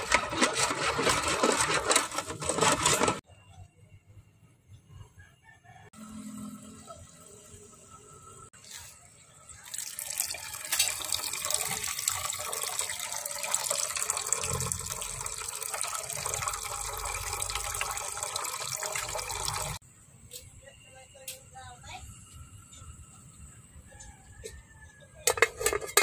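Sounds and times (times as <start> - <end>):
water pouring into a pot: 9.6 - 19.8.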